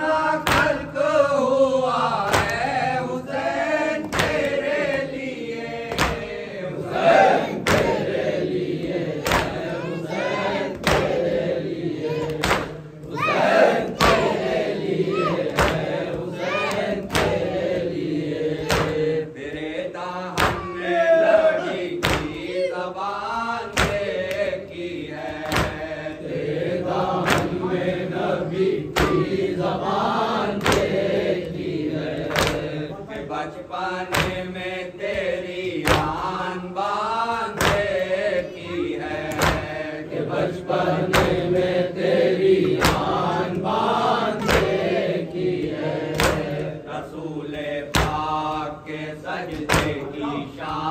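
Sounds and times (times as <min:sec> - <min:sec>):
men chanting slow melody: 0:00.0 - 0:50.9
hand strikes on chest: 0:25.3 - 0:25.9, 0:39.2 - 0:39.8, 0:47.9 - 0:48.3.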